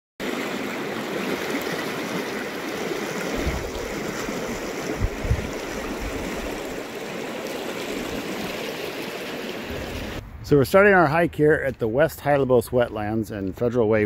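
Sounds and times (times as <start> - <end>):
river rushing over gravel: 0.2 - 10.2
low bumps: 3.3 - 6.7.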